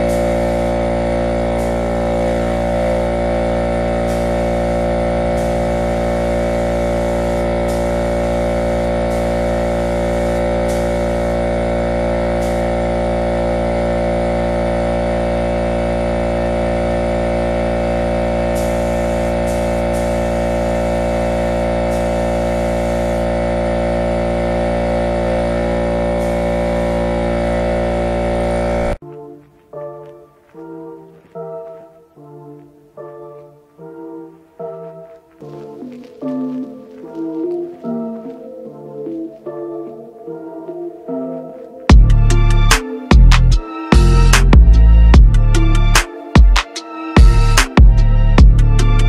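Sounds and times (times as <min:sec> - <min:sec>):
air compressor motor hum: 0:00.0 - 0:29.0, 0:41.9 - 0:49.0
spray gun air hiss: 0:00.0 - 0:29.0.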